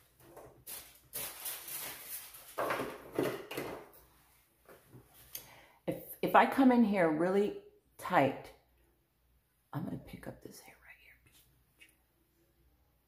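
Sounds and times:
objects rustling on a table: 0.1 - 5.3.

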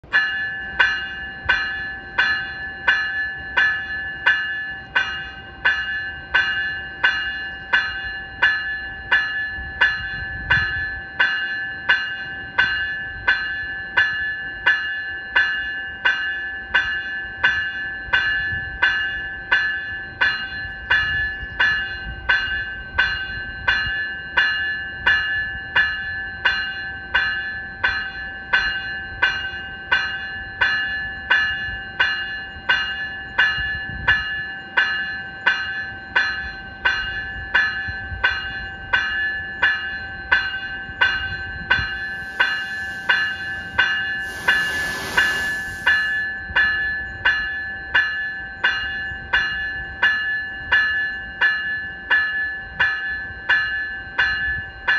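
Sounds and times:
electronic train bell ringing: 0.0 - 54.9
low rumble of standing train: 41.0 - 46.9.

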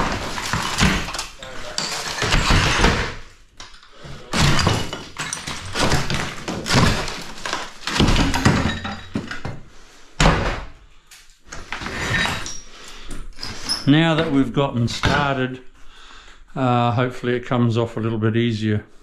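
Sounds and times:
wall sheeting breaking: 0.0 - 3.4, 4.0 - 9.5
rubble falling: 0.0 - 9.6.

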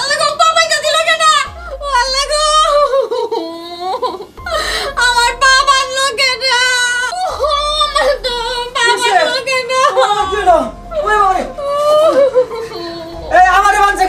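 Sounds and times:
woman wailing and sobbing: 0.9 - 14.0
gasping breath: 4.4 - 5.0.

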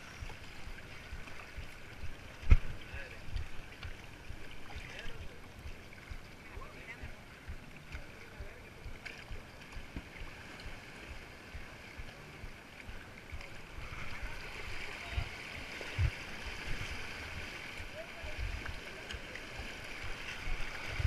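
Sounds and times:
sea water sloshing around rocks: 0.0 - 21.0
thumps on microphone: 2.4 - 2.8.

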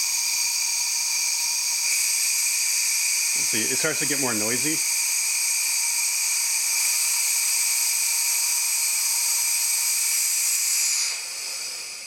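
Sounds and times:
compressed air hissing: 10.0 - 12.0.

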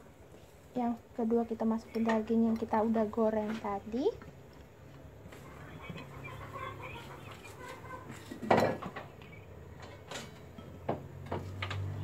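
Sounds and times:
faint low hum: 0.0 - 12.0
dishes and utensils clattering: 7.6 - 9.2, 9.8 - 12.0.

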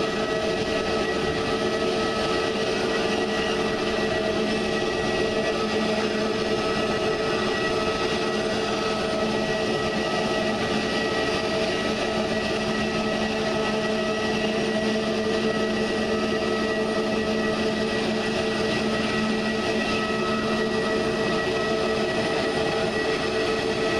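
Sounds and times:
jet engines idling whine: 0.0 - 23.9.

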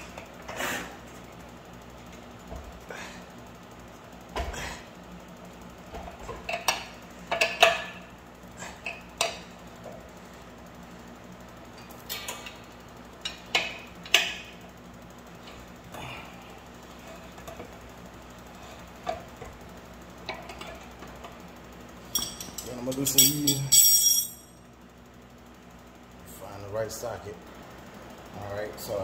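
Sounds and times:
wrench clanking against metal nut: 22.1 - 24.4.

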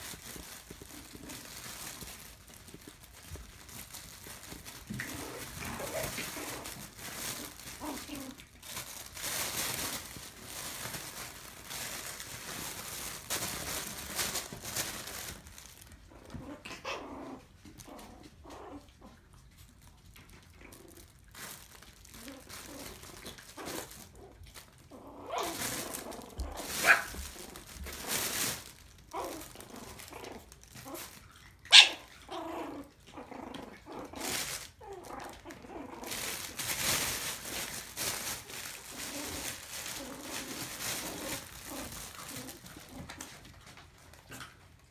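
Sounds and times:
nylon tunnel rustling: 0.0 - 16.2, 20.8 - 31.3, 32.4 - 43.6
puppies scuffling: 0.0 - 44.9
puppy play growls: 0.1 - 21.4, 22.2 - 44.9
puppy yips: 31.7 - 32.1.

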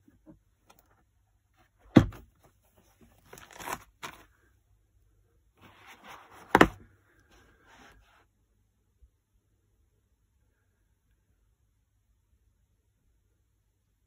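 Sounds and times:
lid and foam rustling: 1.8 - 4.3.

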